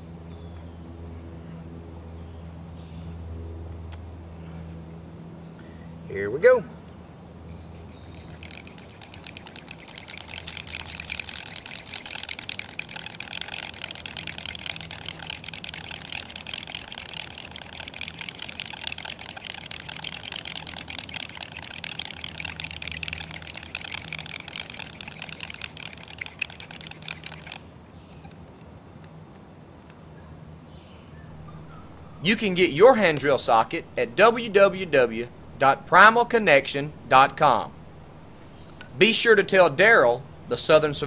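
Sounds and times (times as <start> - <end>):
wood rubbing on wood: 7.6 - 27.6
high squeak: 8.0 - 13.3.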